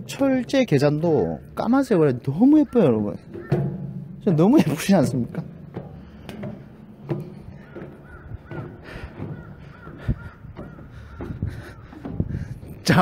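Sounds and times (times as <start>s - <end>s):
footsteps on steel stairs: 0.0s - 13.0s
crow cawing: 1.2s - 4.1s, 7.2s - 12.8s.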